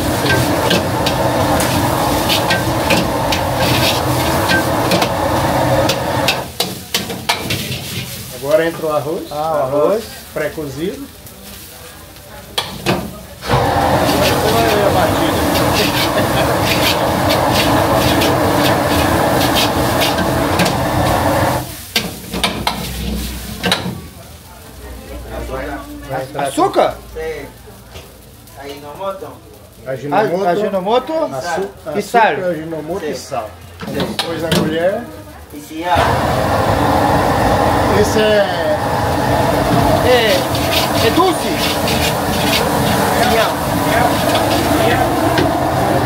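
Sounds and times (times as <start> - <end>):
metal ladle scraping a wok: 0.0 - 8.3, 13.5 - 23.8, 39.6 - 45.5
food sizzling: 0.0 - 46.0.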